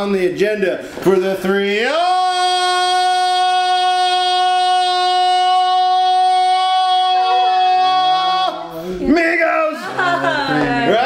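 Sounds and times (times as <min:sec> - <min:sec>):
man singing a long high note: 0:01.9 - 0:08.8.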